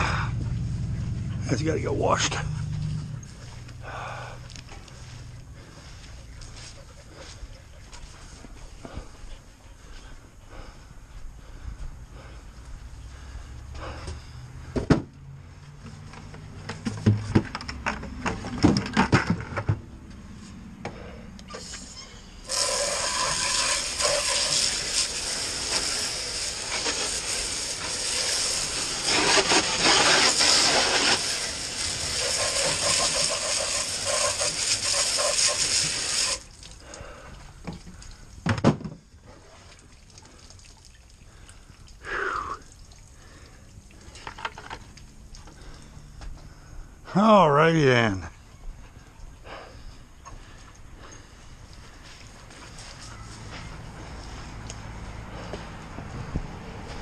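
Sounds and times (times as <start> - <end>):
hose nozzle spraying water: 21.5 - 36.9.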